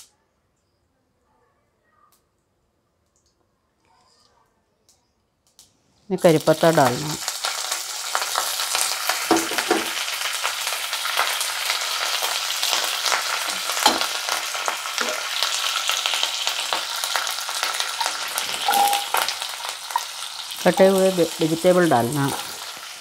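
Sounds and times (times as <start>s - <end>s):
leaves sizzling in hot oil: 6.1s - 23.0s.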